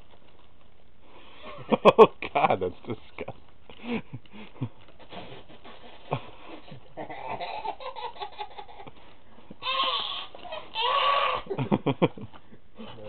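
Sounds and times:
person laughing: 0:11.2 - 0:12.4.

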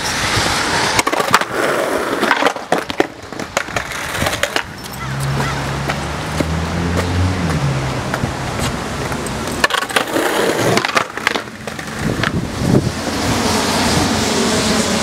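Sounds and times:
skateboard knocking on asphalt: 0:00.9 - 0:12.4.

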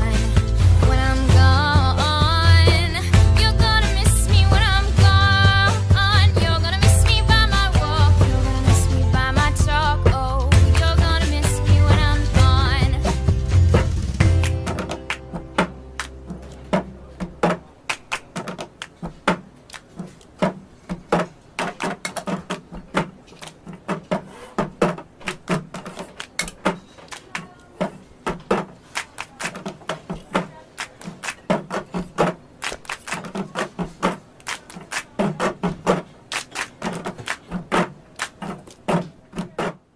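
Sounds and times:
hand and cup percussion taps: 0:13.8 - 0:39.8.

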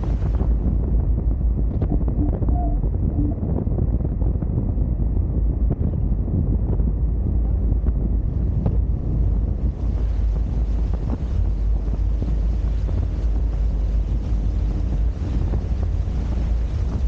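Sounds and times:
water rushing along boat hull: 0:00.0 - 0:03.6, 0:07.1 - 0:17.0
heavy wind buffeting microphone: 0:00.0 - 0:17.0.

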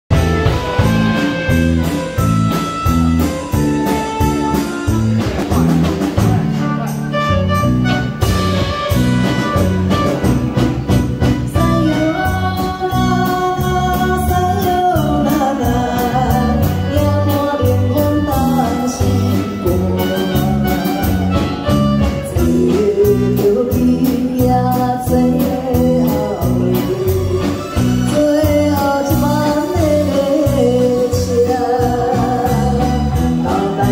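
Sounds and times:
amplified pop backing music: 0:00.1 - 0:33.9
woman singing into microphone: 0:11.5 - 0:21.1, 0:22.1 - 0:33.9.

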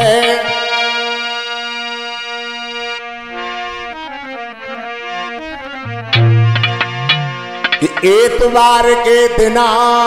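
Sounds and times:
instrumental music: 0:02.1 - 0:08.7.

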